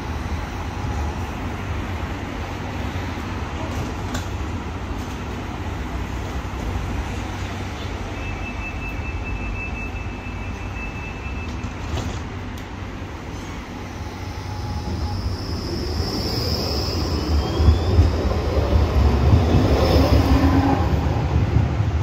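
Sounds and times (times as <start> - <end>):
tram rumble: 0.0 - 22.0
tram wheel squeal: 7.8 - 12.2, 13.3 - 21.0.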